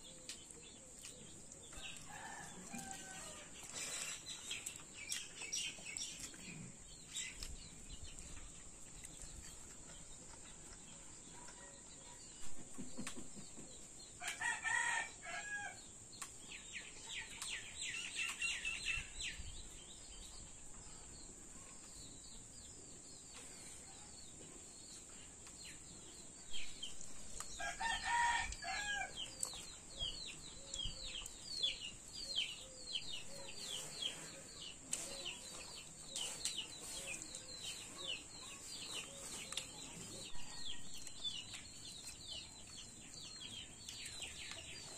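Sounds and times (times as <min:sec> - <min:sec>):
small birds chirping: 0:00.0 - 0:44.9
rooster crowing: 0:27.6 - 0:29.2.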